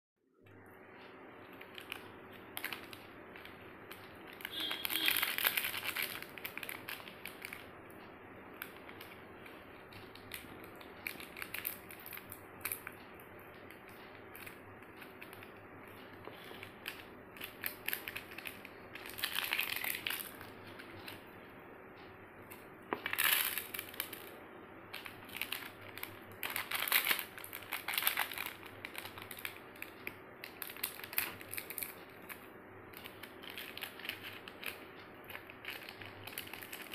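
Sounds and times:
plastic sachets crinkling: 1.4 - 7.8, 8.5 - 13.0, 13.6 - 21.2, 22.5 - 24.3, 24.9 - 36.9
small rustles and clicks: 22.0 - 36.9.

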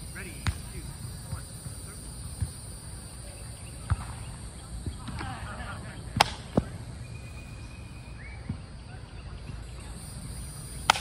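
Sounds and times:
plastic flying disc slaps: 6.2 - 6.7
faint high bird chirp: 6.9 - 10.9.

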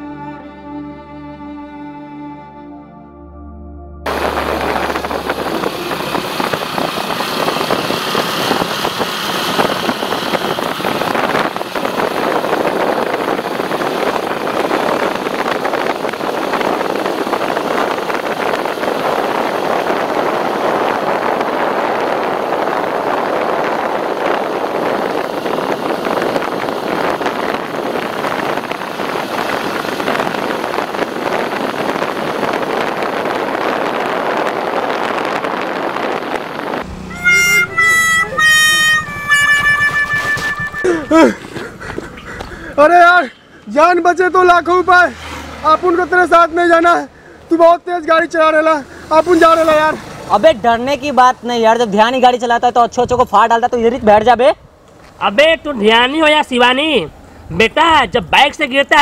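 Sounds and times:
road noise rushing: 4.0 - 59.0
motorcycle engine running: 4.1 - 19.7.

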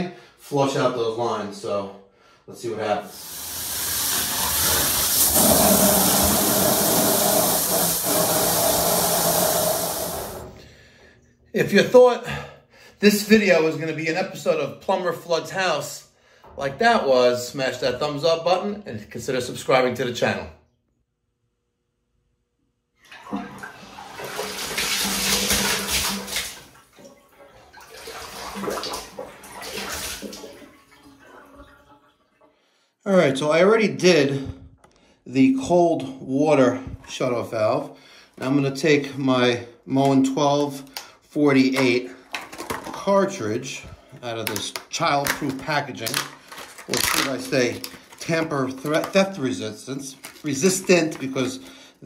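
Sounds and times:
water spraying from pipe: 3.1 - 10.5, 24.2 - 26.6.

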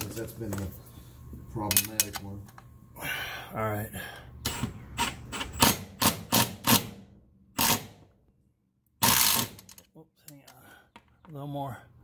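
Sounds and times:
ratchet wrench clicking: 9.0 - 9.8.

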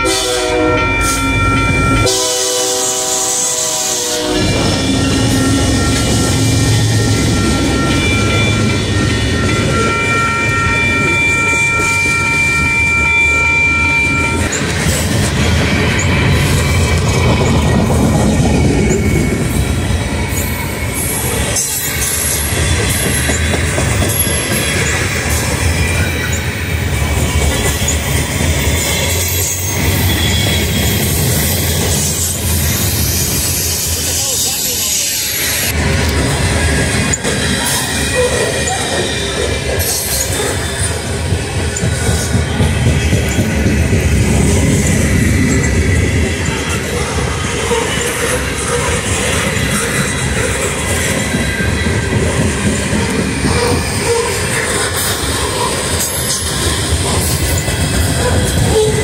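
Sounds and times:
train horn: 0.0 - 14.5
high steady ringing tones: 0.0 - 35.8
freight cars rumbling on rails: 0.0 - 59.0.

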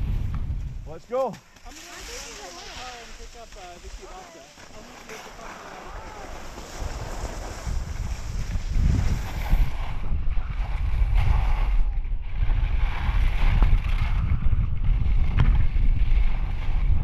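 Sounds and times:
wind buffeting microphone: 0.0 - 1.0, 5.9 - 17.0
skis hissing on snow: 1.6 - 10.0.

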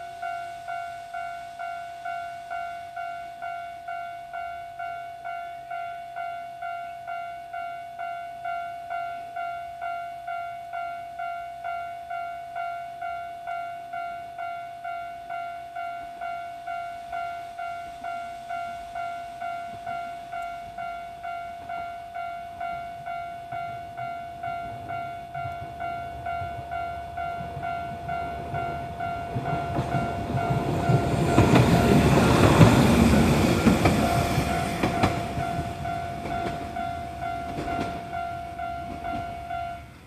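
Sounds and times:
train rumble: 17.0 - 40.0.

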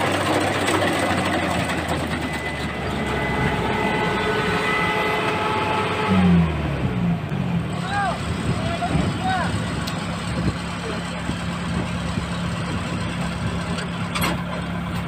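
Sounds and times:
diesel engine running: 0.0 - 15.0
low-pitched pulsing sound: 1.7 - 13.7
thin multi-tone whine: 1.8 - 7.4.

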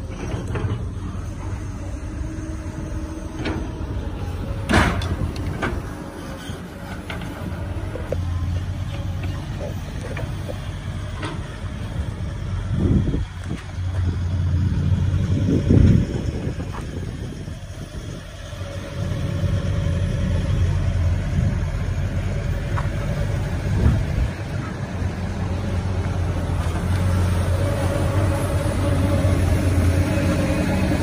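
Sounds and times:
diesel machinery droning: 0.0 - 31.0.

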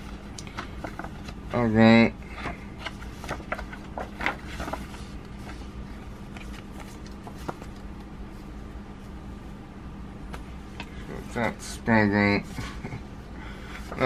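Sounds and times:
paper booklet crinkling: 0.0 - 1.7, 2.3 - 8.0
steady faint hum: 0.0 - 14.0.

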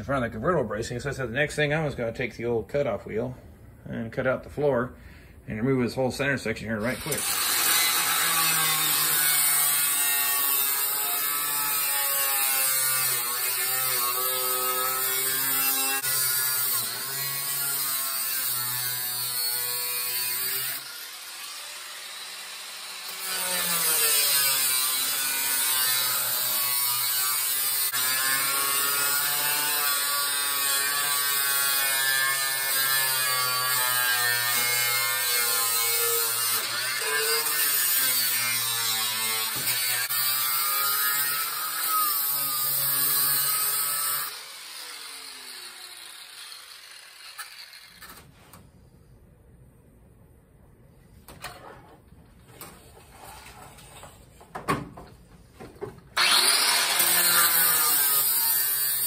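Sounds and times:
cutoff wheel grinding metal: 6.9 - 48.3, 56.2 - 59.0.

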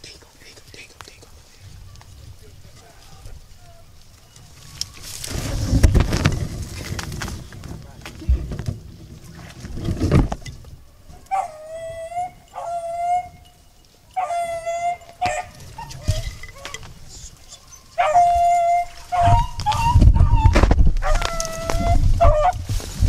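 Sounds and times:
low rumbling noise: 2.2 - 11.1
beagles baying: 10.8 - 22.7.

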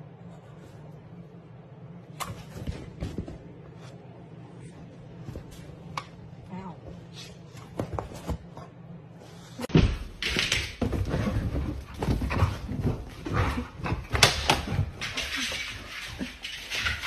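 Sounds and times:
dogs playing noises: 10.9 - 17.0.

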